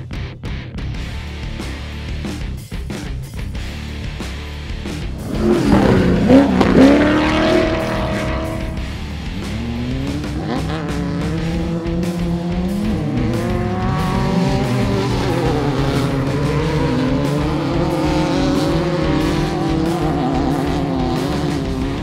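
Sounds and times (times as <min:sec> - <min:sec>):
race buggy engines revving: 0:03.6 - 0:22.0
beat-driven music: 0:04.8 - 0:22.0.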